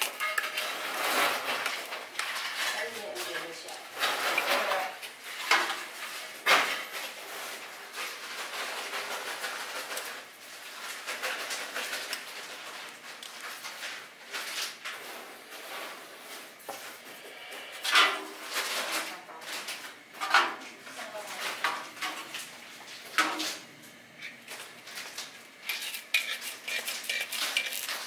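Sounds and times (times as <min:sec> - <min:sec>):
metal pan clattering and scraping: 0:25.7 - 0:28.0.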